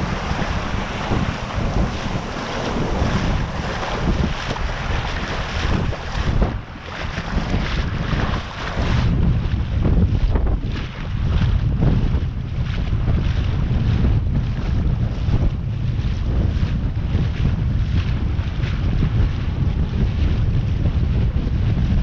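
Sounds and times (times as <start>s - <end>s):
heavy low rumble: 0.0s - 22.0s
wind buffeting microphone: 0.0s - 22.0s.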